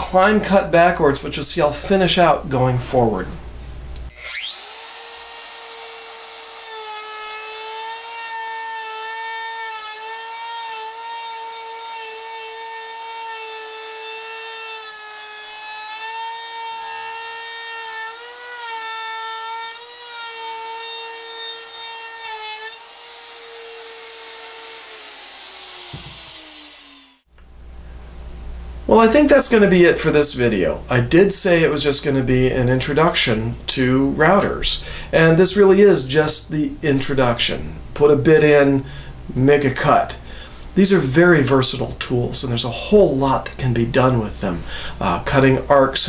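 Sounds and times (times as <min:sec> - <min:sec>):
router bit cutting wood: 0:04.1 - 0:27.3
router motor whining: 0:04.1 - 0:27.3.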